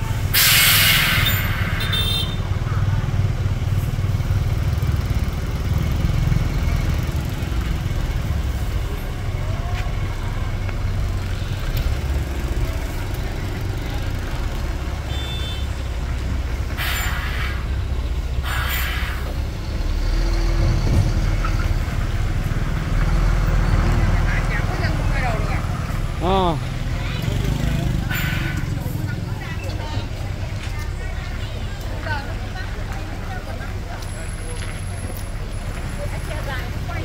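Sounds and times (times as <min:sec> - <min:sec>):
truck diesel engine rumble: 0:00.0 - 0:37.0
compressed air hisses: 0:00.3 - 0:01.8, 0:16.8 - 0:17.8, 0:18.4 - 0:19.4.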